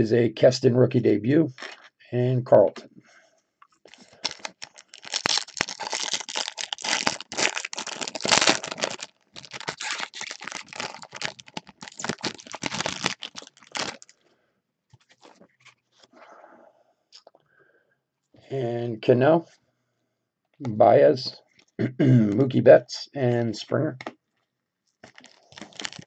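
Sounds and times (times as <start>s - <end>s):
foil wrapper crinkling: 3.9s - 14.2s, 25.0s - 26.0s.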